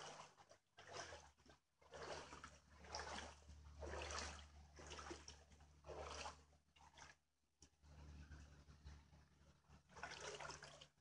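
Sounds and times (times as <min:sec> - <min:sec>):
floodwater splashing and trickling: 0:00.0 - 0:07.3, 0:09.7 - 0:11.0
faint low hum: 0:02.8 - 0:10.8.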